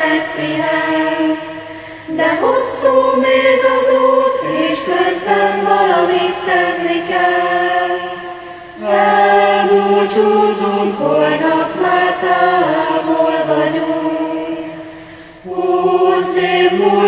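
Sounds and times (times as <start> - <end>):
choir singing long held notes: 0.0 - 17.0.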